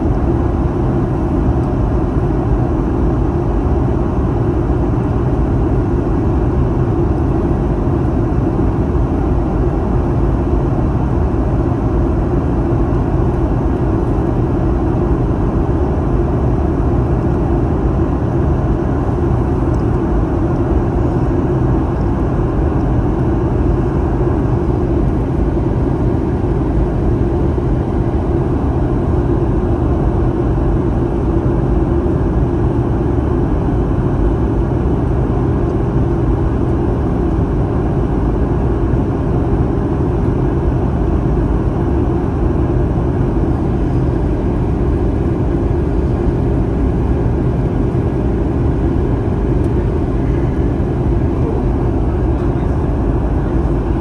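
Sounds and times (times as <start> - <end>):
jet engine cabin drone: 0.0 - 54.0.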